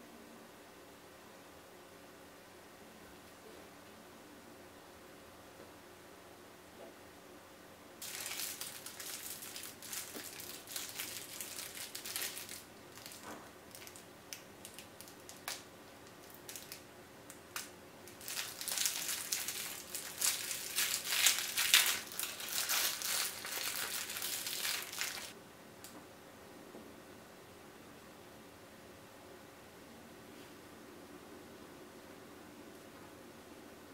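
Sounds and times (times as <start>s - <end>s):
plastic bag crinkling: 8.0s - 16.8s, 17.5s - 25.4s.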